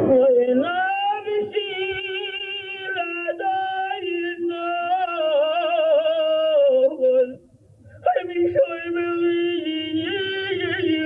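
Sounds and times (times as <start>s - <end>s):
man chanting over loudspeaker: 8.0s - 11.0s.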